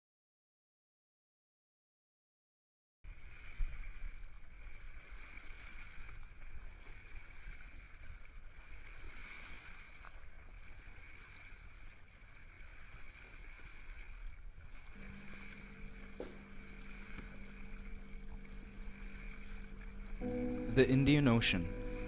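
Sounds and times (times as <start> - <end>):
boat engine rumble: 3.1 - 22.0
low sustained music notes: 14.8 - 22.0
water wash: 14.8 - 22.0
steady high hum: 14.9 - 22.0.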